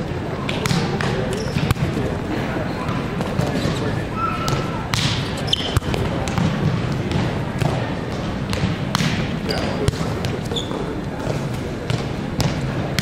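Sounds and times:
murmur of distant voices: 0:00.0 - 0:13.0
hands slapping a volleyball: 0:04.5 - 0:05.2, 0:05.8 - 0:10.1.

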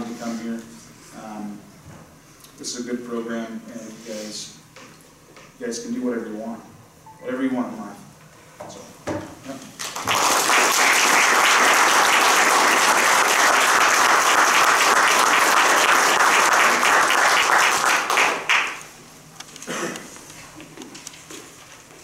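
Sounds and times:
audience applauding: 0:09.8 - 0:18.8.

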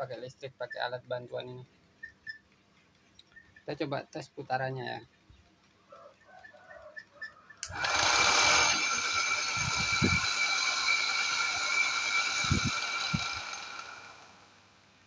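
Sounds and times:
motor high whine: 0:07.7 - 0:14.6.

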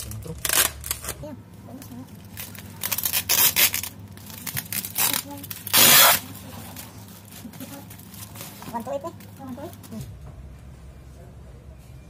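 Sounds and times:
packing tape ripping: 0:00.0 - 0:01.2, 0:02.2 - 0:08.6
plastic wrap rustling: 0:00.0 - 0:10.2.

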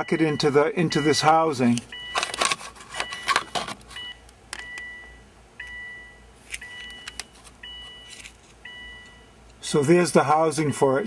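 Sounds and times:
car warning chime beeping: 0:00.0 - 0:09.4
parts clicking and rattling: 0:01.8 - 0:04.8.

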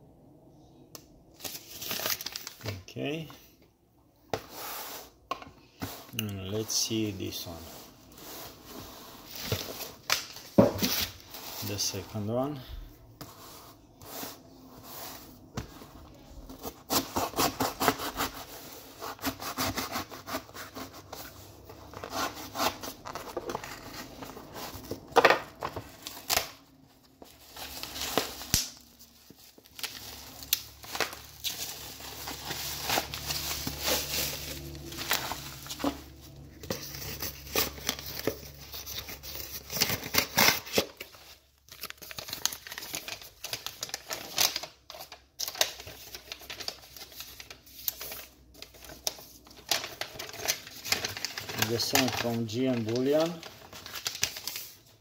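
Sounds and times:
bubble wrap crinkling: 0:01.4 - 0:02.8, 0:15.9 - 0:55.0
cardboard box being opened: 0:30.8 - 0:40.8.

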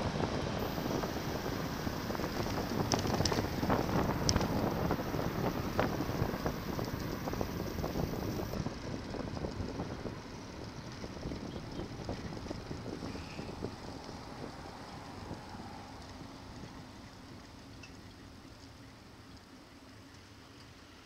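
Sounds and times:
wind rushing over microphone: 0:00.0 - 0:10.1
road rumble: 0:00.0 - 0:17.3
sharp clicks: 0:00.6 - 0:08.6.

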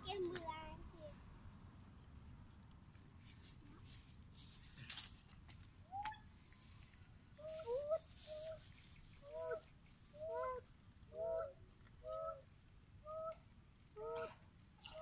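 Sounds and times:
animal honk-like calls: 0:14.0 - 0:15.0.

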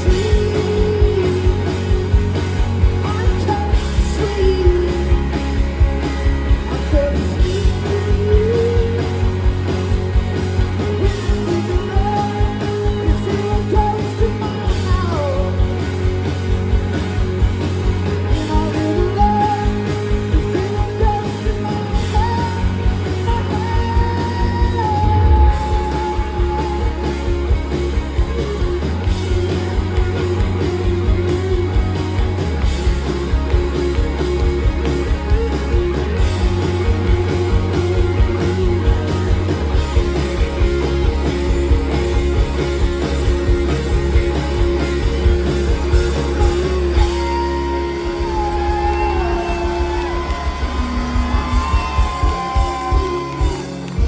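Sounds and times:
person singing: 0:00.0 - 0:02.1, 0:03.0 - 0:05.3, 0:06.7 - 0:09.4, 0:10.8 - 0:15.8, 0:18.3 - 0:27.5, 0:46.2 - 0:50.6
bass guitar: 0:00.0 - 0:54.0
electric guitars: 0:00.0 - 0:54.0
drum beat: 0:48.6 - 0:54.0.

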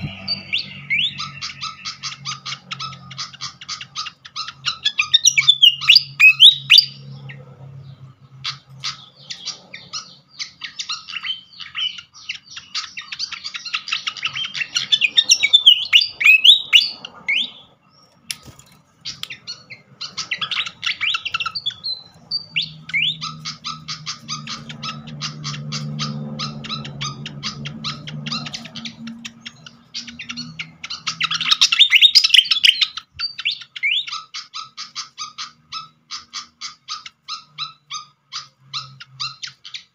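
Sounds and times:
bird dry ticking calls: 0:00.0 - 0:07.1
bird whistled song: 0:00.0 - 0:07.2, 0:08.5 - 0:18.4, 0:19.0 - 0:39.9.

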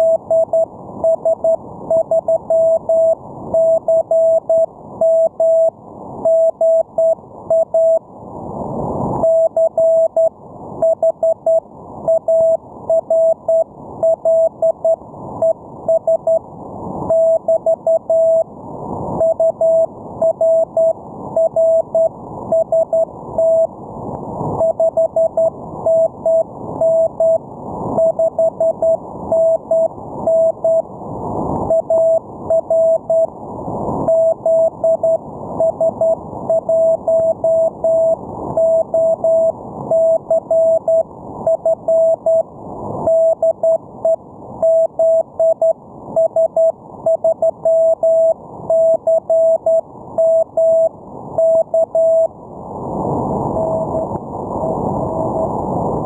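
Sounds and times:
morse code tone: 0:00.0 - 0:08.0, 0:17.1 - 0:18.5, 0:19.2 - 0:23.7, 0:24.6 - 0:27.4, 0:28.0 - 0:30.8, 0:31.7 - 0:33.3, 0:34.1 - 0:42.4, 0:43.1 - 0:52.3, 0:53.5 - 0:54.1.

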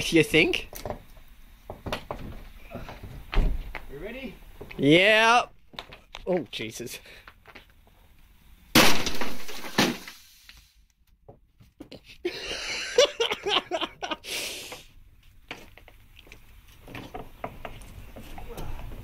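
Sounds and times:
footsteps on concrete steps: 0:00.7 - 0:03.9, 0:04.5 - 0:04.9, 0:14.7 - 0:19.0
rock crashing into television: 0:08.7 - 0:10.3.

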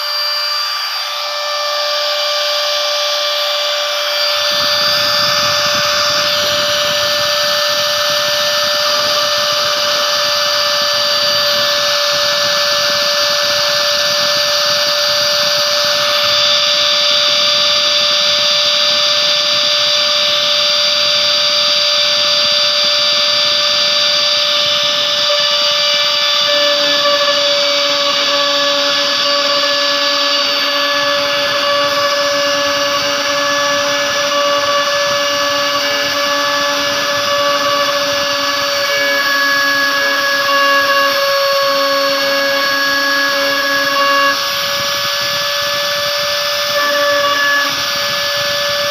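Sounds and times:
low hum: 0:00.0 - 0:19.2
router spindle whining: 0:00.0 - 0:48.9.

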